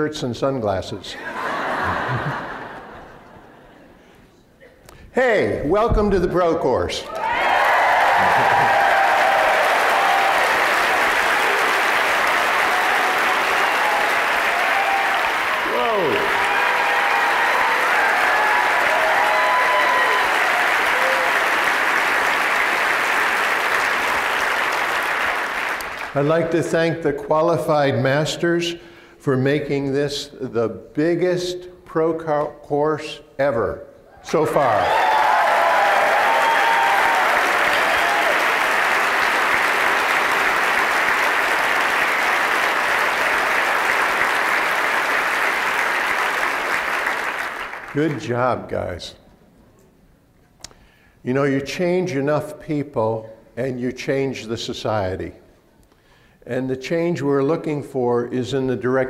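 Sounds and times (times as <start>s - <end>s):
audience applauding: 1.4s - 3.4s, 7.0s - 26.5s, 34.5s - 48.4s.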